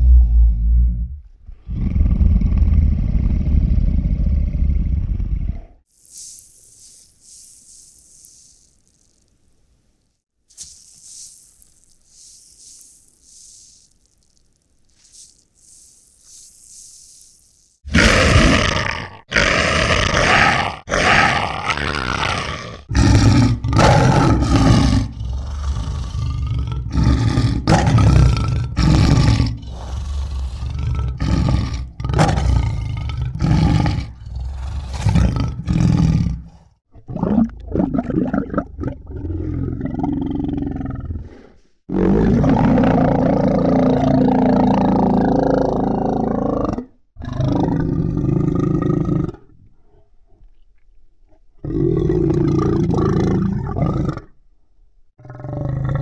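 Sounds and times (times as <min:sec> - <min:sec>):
monster roars and growls: 0:17.9 - 0:36.6.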